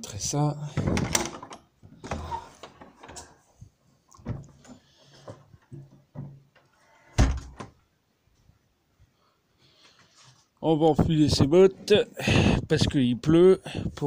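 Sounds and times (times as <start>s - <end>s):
door banging: 7.2s - 7.7s.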